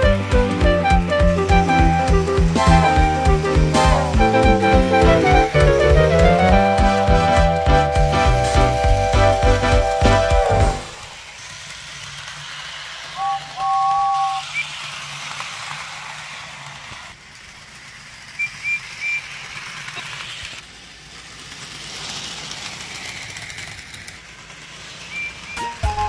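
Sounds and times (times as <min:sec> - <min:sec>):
two-tone train whistle: 0:00.0 - 0:11.1, 0:13.2 - 0:14.7, 0:25.1 - 0:26.0.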